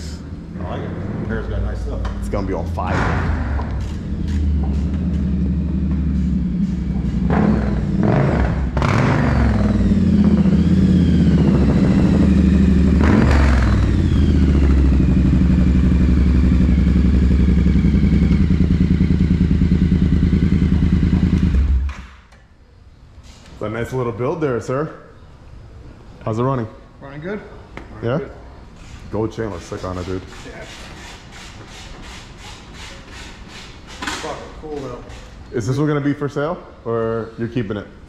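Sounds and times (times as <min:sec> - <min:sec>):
motorcycle engine idling and revving: 0:00.0 - 0:22.3.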